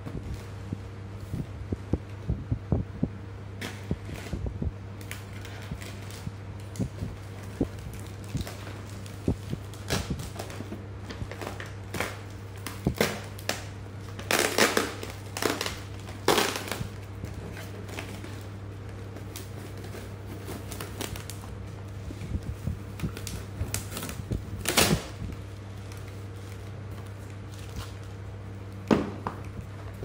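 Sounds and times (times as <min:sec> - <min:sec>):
steady low hum: 0:00.0 - 0:30.0
packaging crinkling: 0:05.0 - 0:28.8.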